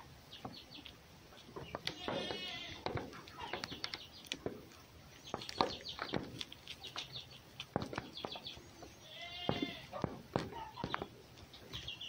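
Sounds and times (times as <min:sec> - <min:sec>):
fox chewing with wet crunching: 0:00.4 - 0:09.0.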